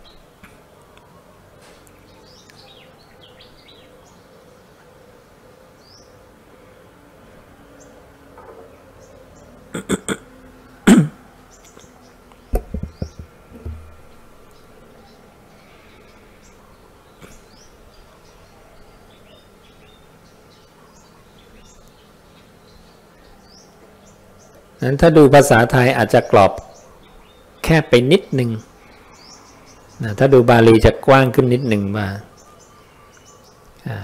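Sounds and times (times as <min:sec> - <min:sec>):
steady insect buzz: 0:02.9 - 0:25.7, 0:26.6 - 0:30.1
sharp knocks: 0:12.5 - 0:14.0
thumps: 0:12.5 - 0:14.1.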